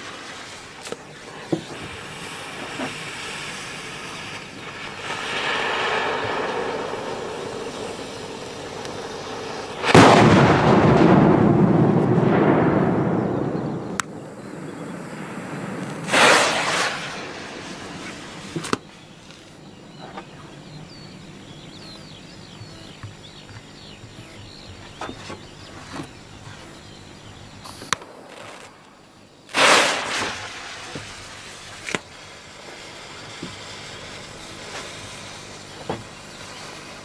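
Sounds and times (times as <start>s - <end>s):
firecracker bangs: 1.6s - 18.9s, 27.9s - 37.0s
firecracker cracks: 4.4s - 14.2s, 15.8s - 18.9s, 27.7s - 35.7s.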